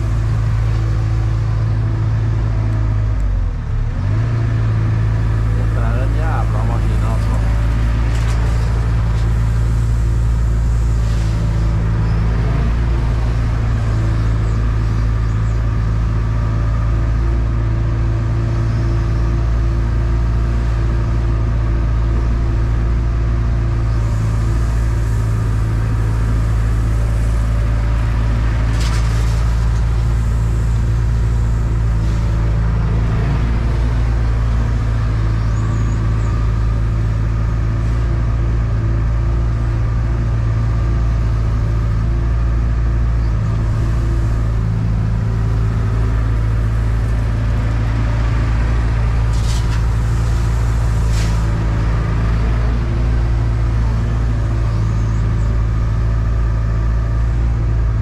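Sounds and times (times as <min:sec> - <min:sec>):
diesel engine running: 0:00.0 - 0:58.0.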